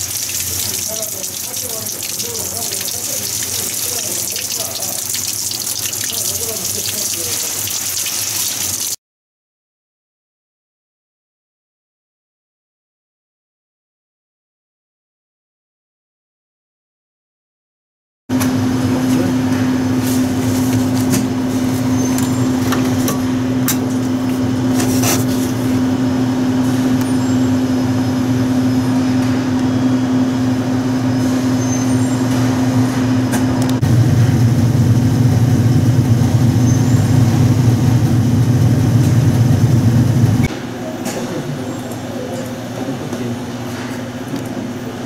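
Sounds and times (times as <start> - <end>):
washing machine hum: 0.0 - 9.0, 18.3 - 45.0.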